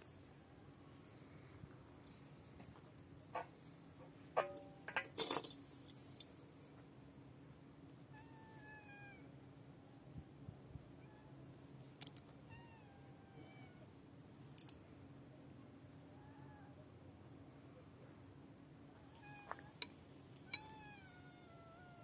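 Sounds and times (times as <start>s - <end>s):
cat meowing: 19.0s - 19.8s, 20.4s - 22.0s.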